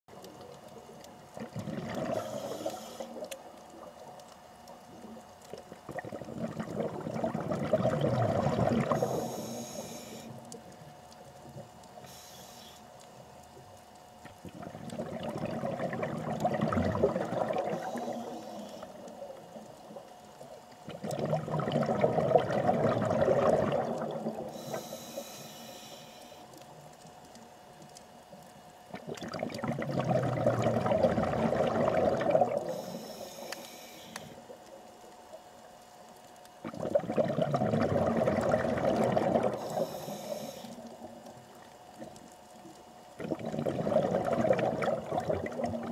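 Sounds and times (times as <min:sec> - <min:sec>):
bubbling underwater exhalations: 0:01.3 - 0:04.0, 0:04.9 - 0:09.4, 0:14.3 - 0:20.1, 0:20.8 - 0:24.8, 0:28.9 - 0:32.9, 0:36.6 - 0:41.4, 0:43.2 - 0:45.9
regulator hiss: 0:02.1 - 0:03.4, 0:08.7 - 0:10.7, 0:11.9 - 0:13.3, 0:17.6 - 0:20.6, 0:24.4 - 0:27.5, 0:32.6 - 0:34.6, 0:39.5 - 0:41.7.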